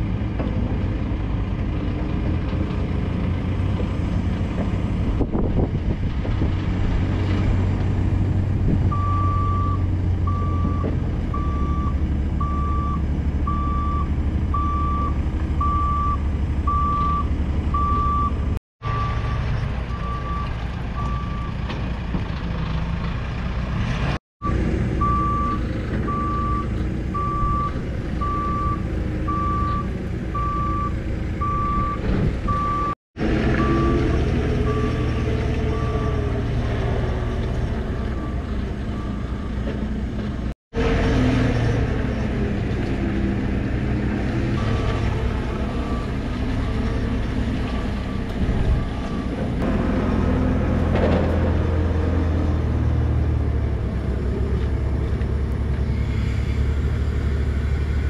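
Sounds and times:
diesel engine rumble: 0:00.0 - 0:58.0
reversing alarm beeping: 0:08.9 - 0:21.6, 0:24.4 - 0:33.0, 0:35.7 - 0:36.3.

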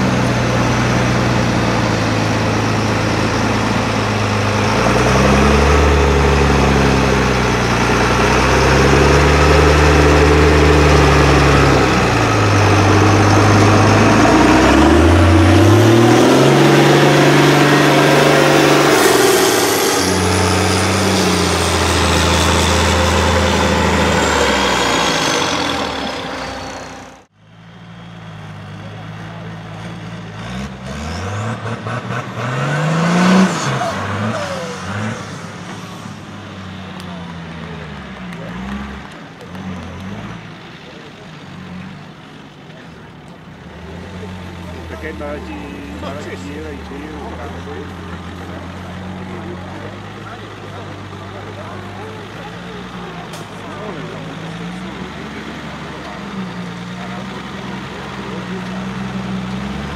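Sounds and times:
quieter engine revving sharply: 0:00.0 - 0:27.3, 0:27.9 - 0:59.9
truck engine revving hard: 0:00.0 - 0:59.9.

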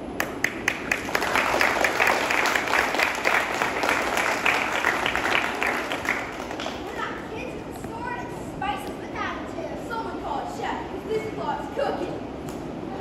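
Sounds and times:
audience applauding: 0:00.2 - 0:07.2.

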